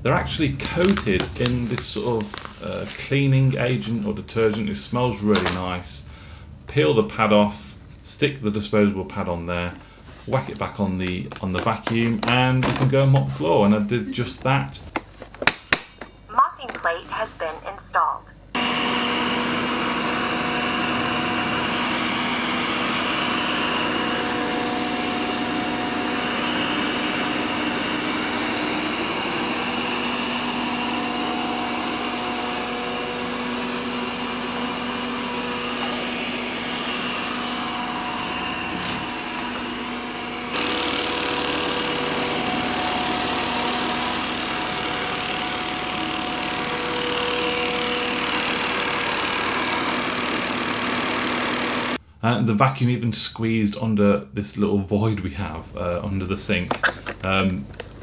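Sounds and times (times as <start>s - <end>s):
robot vacuum motor whir: 18.6s - 52.0s.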